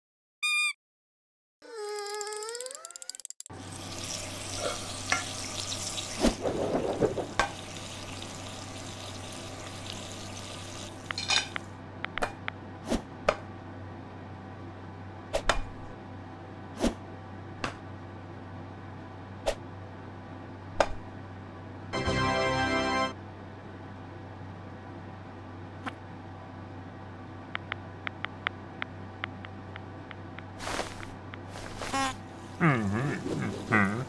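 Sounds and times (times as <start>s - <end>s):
pancake sizzling in frying pan: 3.6s - 11.2s.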